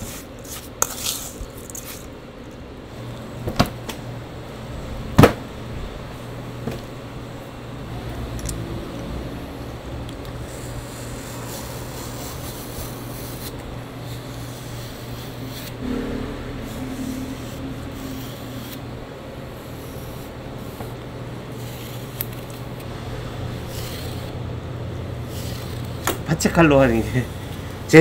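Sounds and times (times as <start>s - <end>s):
knife scraping pork skin: 0.0s - 2.1s, 17.3s - 18.9s, 23.6s - 24.4s, 25.3s - 26.1s
steady low hum: 0.0s - 28.0s.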